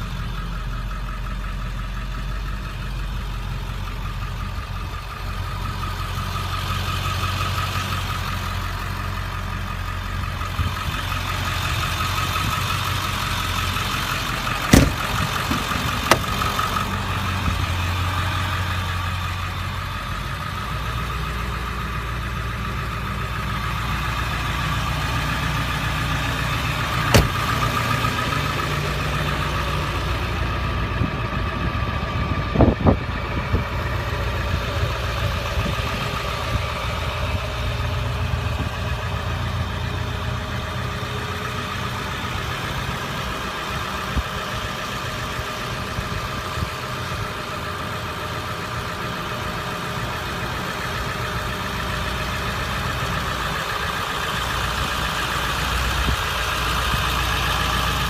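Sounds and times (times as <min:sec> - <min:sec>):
diesel engine idling: 0:00.0 - 0:58.0
knocks: 0:14.7 - 0:16.4, 0:27.1 - 0:27.5.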